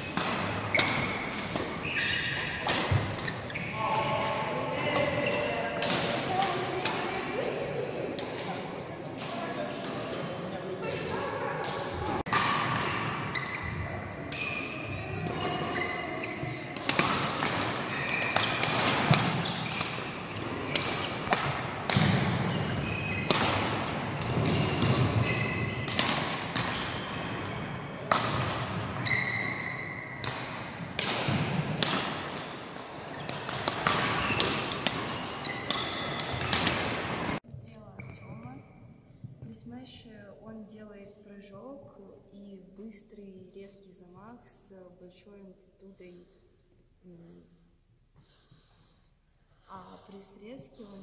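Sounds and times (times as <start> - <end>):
shoes squeaking: 0.0 - 5.8, 13.2 - 28.1, 28.7 - 30.3, 33.1 - 38.6
racket hitting shuttlecock: 0.0 - 7.3, 10.9 - 15.9, 16.7 - 37.4.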